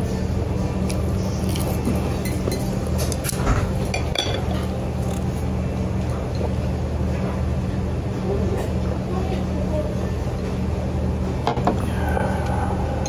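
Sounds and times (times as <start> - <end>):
steady low hum: 0.0 - 13.0
tableware and glass clinking: 2.1 - 4.8.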